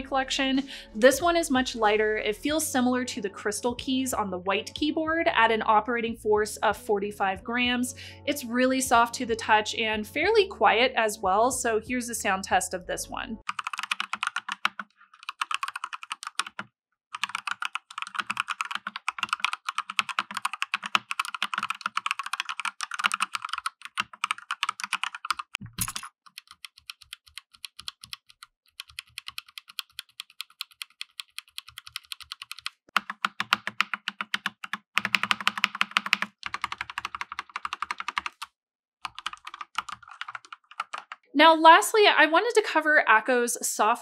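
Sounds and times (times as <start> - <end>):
mechanical keyboard typing: 13.5 - 41.2.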